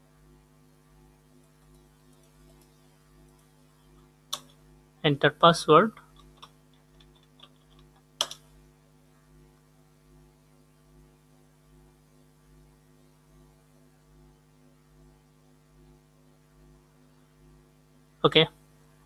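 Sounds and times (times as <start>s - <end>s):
faint electrical hum: 0.0s - 19.0s
keyboard key click: 8.2s - 8.4s.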